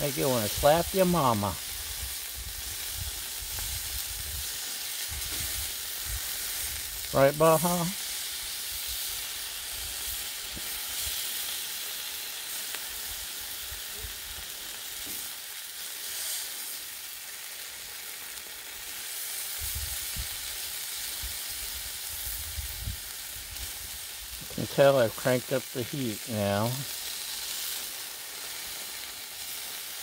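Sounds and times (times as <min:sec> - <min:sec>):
steaks sizzling on a griddle: 0:00.0 - 0:30.0.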